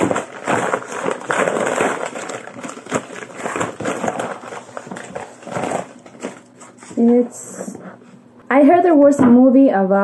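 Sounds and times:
wrapping paper rustling and crinkling: 0.0 - 7.4.

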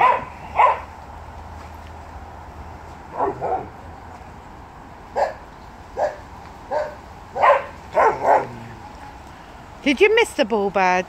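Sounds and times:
dog barking: 0.0 - 0.9, 3.1 - 3.8, 5.2 - 5.4, 6.0 - 8.7.

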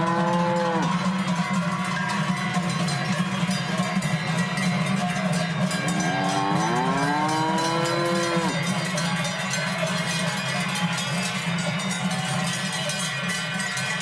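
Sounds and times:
cow mooing: 0.0 - 0.9, 5.9 - 8.6
cowbells clanging: 0.0 - 14.0.

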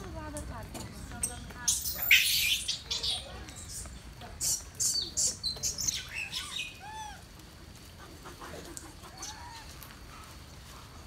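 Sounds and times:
animal chirping calls: 1.7 - 3.8, 4.4 - 7.2.

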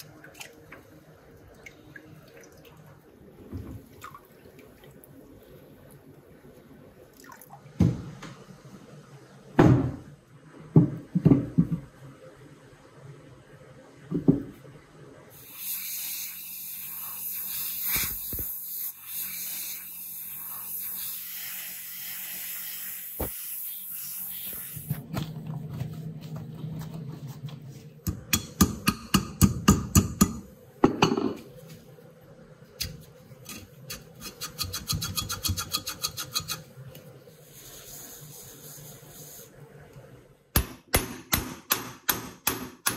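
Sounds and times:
iron knocking on workbench: 30.8 - 31.4.

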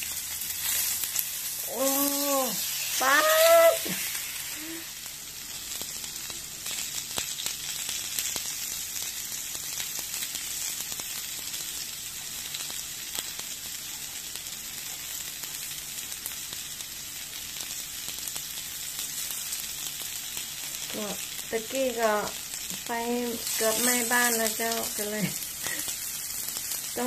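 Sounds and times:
meat sizzling on grill: 0.0 - 27.0
small crackling pops: 19.0 - 27.0.

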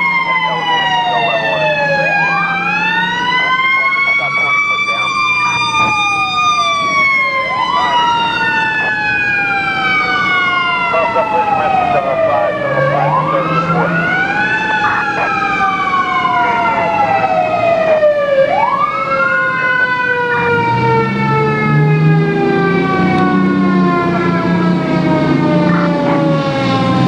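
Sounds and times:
deep engine rumble: 0.0 - 18.3
falling siren tone: 0.0 - 27.0.

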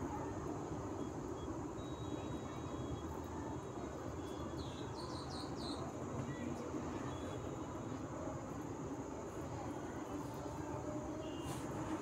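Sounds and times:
small bird chirping: 4.2 - 6.4.

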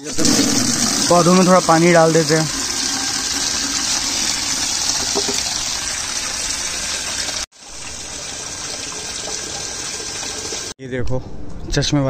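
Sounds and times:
tap water filling plastic bucket: 0.2 - 7.4.

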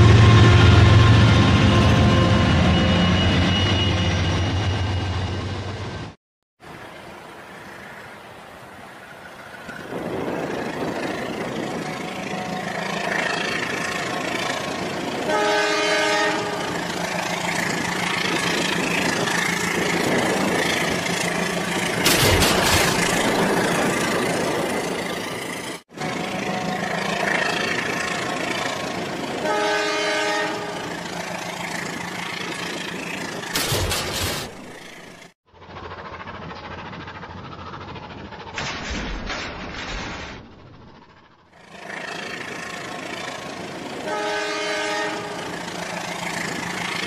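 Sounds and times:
toy train horn: 15.2 - 16.8, 29.4 - 30.8, 44.0 - 45.5.

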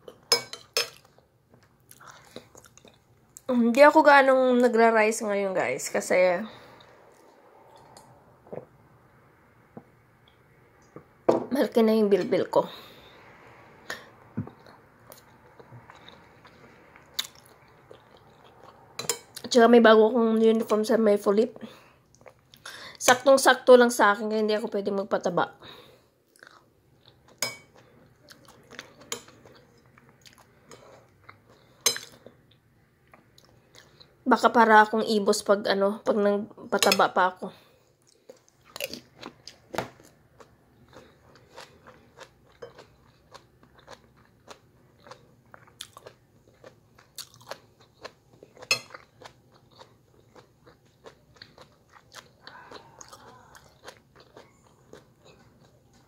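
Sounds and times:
chewing stew: 0.0 - 3.5, 6.7 - 11.2, 12.9 - 19.6, 22.1 - 22.7, 26.3 - 34.2, 38.0 - 56.0.

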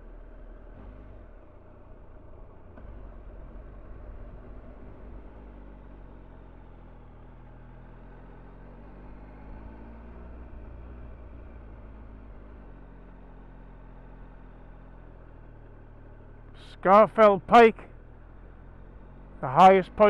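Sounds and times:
motorcycle engine running: 0.0 - 9.7.

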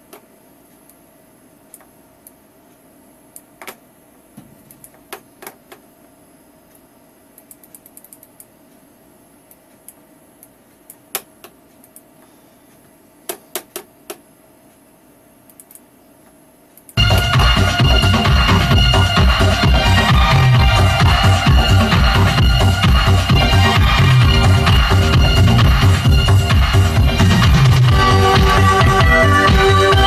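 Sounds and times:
faint steady hum: 0.0 - 30.0
computer mouse and key clicks: 1.7 - 2.4, 4.6 - 5.8, 7.4 - 8.6, 9.5 - 12.2, 15.4 - 15.9
dance music: 17.0 - 30.0.

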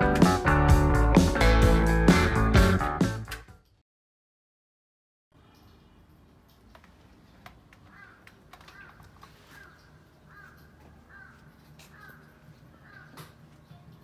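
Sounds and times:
small clicks: 5.5 - 10.8
faint crow cawing: 7.7 - 13.7.

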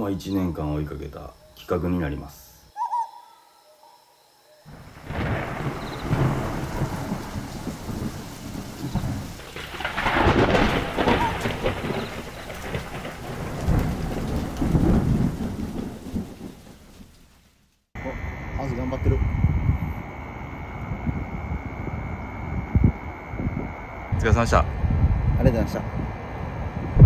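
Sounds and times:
rolling thunder rumbles: 4.7 - 17.4, 18.4 - 27.0
steady rain: 4.7 - 24.7.

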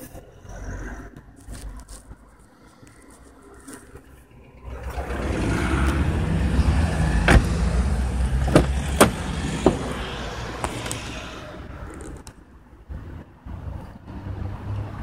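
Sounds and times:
car door handle and latch clicks: 7.2 - 7.6, 8.4 - 9.9.

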